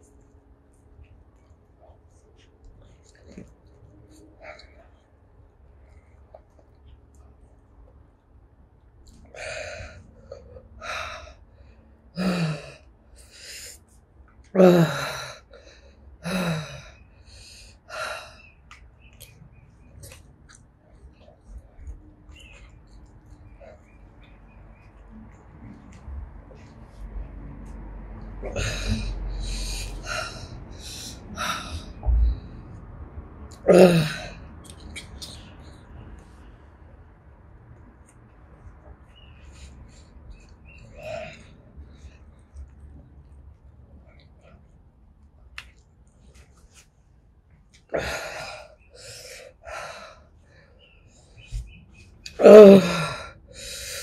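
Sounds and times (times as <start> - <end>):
person panting hissing breaths: 52.8 - 54.0.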